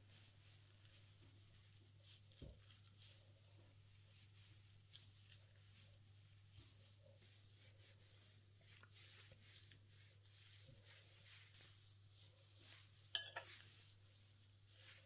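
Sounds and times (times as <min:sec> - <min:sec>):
soft scrapes and rustles: 0:00.0 - 0:15.0
utensil clinking against dish: 0:13.1 - 0:13.6.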